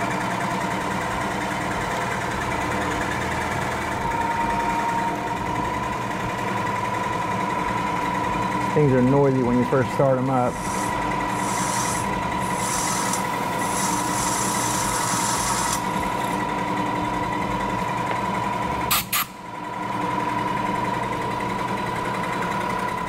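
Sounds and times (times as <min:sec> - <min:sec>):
mill spindle whining: 0:00.0 - 0:23.0
drill bit cutting metal: 0:10.3 - 0:16.4.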